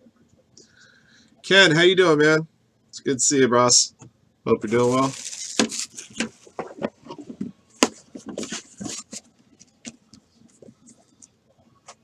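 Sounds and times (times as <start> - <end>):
packaging rustling: 4.6 - 11.2.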